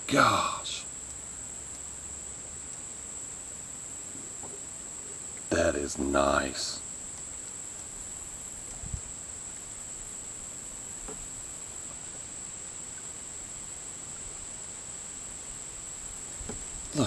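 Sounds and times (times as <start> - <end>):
insects high-pitched drone: 0.0 - 17.0
faint soft thump: 16.4 - 16.7.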